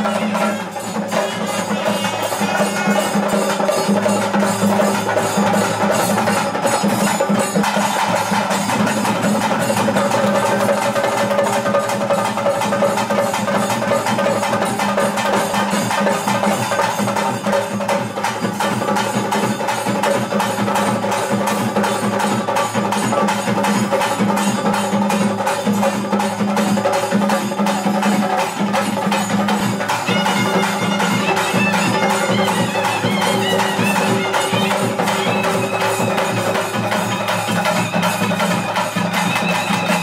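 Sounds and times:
fast steady drumming: 0:00.0 - 0:40.0
wavering high melody: 0:29.7 - 0:40.0.

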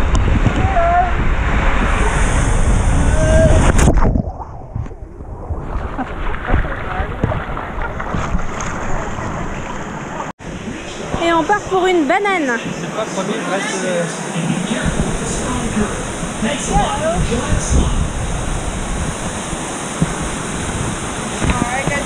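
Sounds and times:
wind noise on microphone: 0:00.0 - 0:11.9, 0:14.5 - 0:22.0
rushing water: 0:04.8 - 0:22.0.

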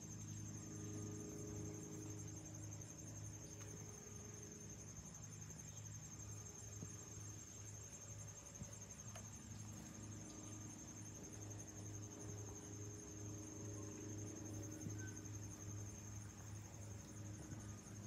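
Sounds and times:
distant aircraft drone: 0:00.0 - 0:18.0
high-pitched insect trill: 0:00.0 - 0:18.0.

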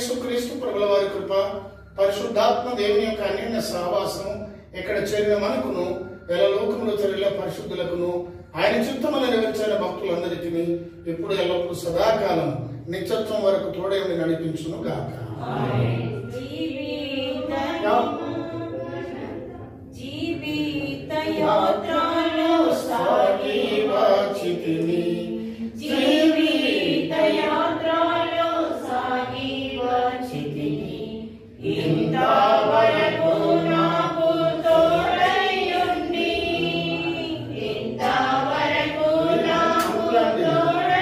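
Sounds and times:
group singing a hymn: 0:15.0 - 0:41.0.

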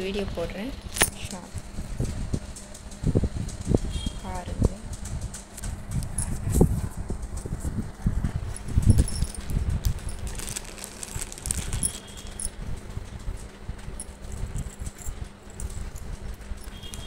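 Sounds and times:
beaded necklace clicking: 0:08.5 - 0:12.6
plastic packet crinkling: 0:08.8 - 0:12.5.

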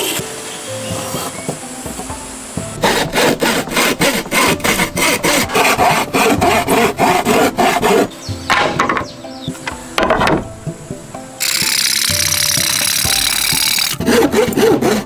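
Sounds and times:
hand saw cutting wood: 0:02.8 - 0:09.1, 0:11.4 - 0:15.0.

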